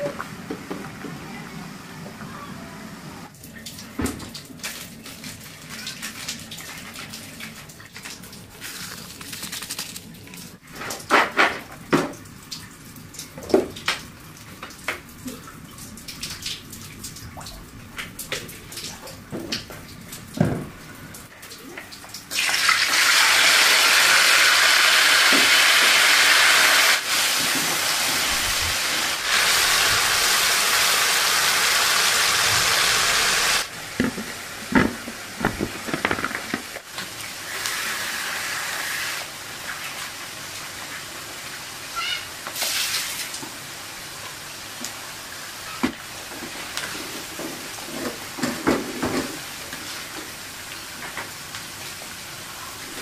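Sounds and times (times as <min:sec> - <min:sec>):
food sizzling in hot oil: 0:22.3 - 0:33.7.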